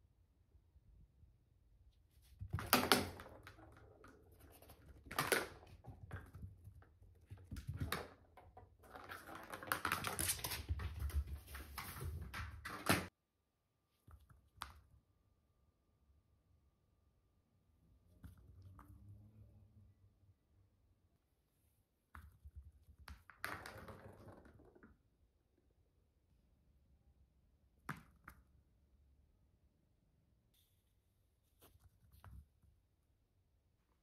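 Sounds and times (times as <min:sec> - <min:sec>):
ball knocking on floor: 0:02.4 - 0:13.1, 0:22.2 - 0:25.0.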